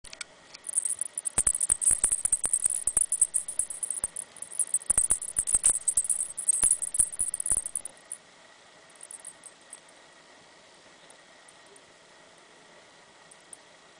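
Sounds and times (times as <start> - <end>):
crackling and clicking: 0.0 - 7.9, 9.0 - 9.5.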